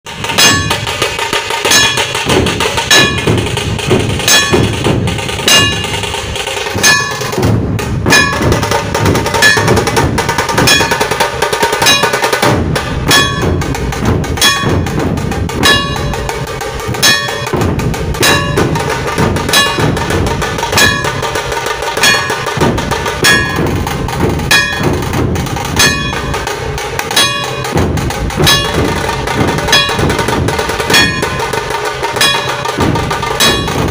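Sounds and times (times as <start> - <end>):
drum ensemble playing: 0.1 - 33.9
sharp ringing accents: 6.8 - 7.4, 27.1 - 27.8.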